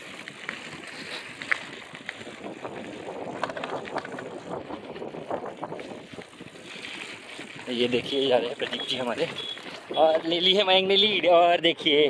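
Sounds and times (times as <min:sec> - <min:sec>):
small ticks and rattles: 0:00.0 - 0:09.9
bicycle tyre noise: 0:00.0 - 0:12.0
wind on microphone: 0:00.6 - 0:08.2.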